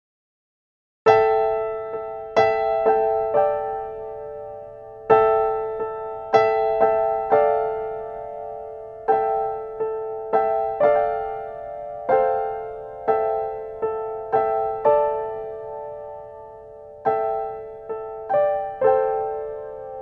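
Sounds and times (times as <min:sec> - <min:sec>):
slow keyboard notes and chords: 0:01.1 - 0:20.0.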